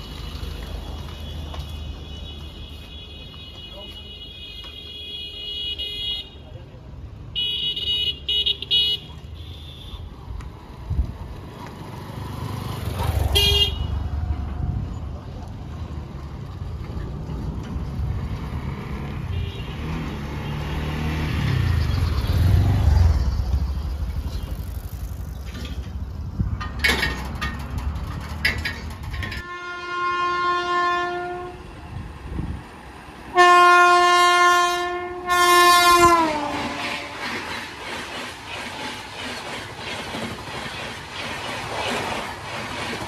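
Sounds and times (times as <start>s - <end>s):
low rumble of road traffic: 0.0s - 38.5s
train air horn blasts: 13.4s - 14.0s, 29.4s - 31.7s, 33.3s - 37.3s.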